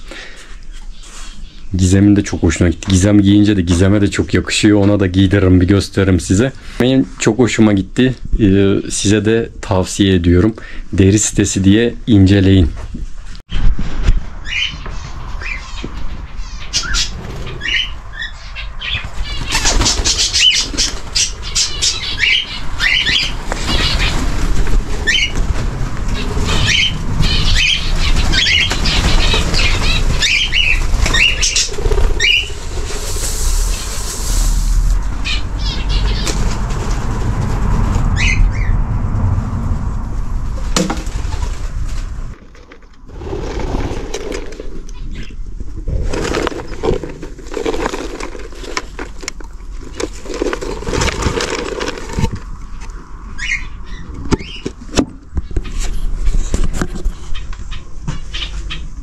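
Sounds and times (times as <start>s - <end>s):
birds calling: 14.4s - 34.5s, 35.1s - 36.8s, 42.6s - 45.5s, 46.1s - 55.8s, 57.3s - 59.0s
wings flapping: 19.0s - 38.7s, 40.2s - 45.3s, 45.9s - 52.6s.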